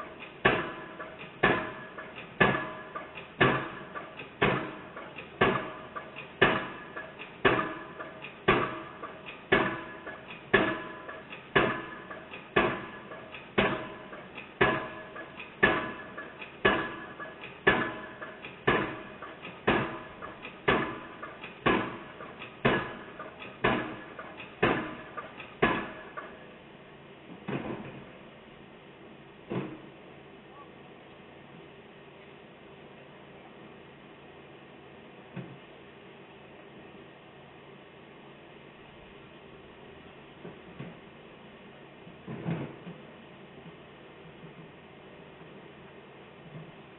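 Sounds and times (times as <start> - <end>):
pile hammer striking with metallic ring: 0.0 - 26.4.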